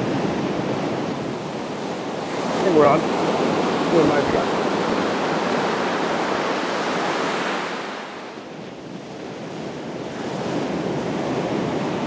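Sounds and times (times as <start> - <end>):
surf washing on beach: 0.0 - 12.0
wind buffeting microphone: 0.0 - 12.0.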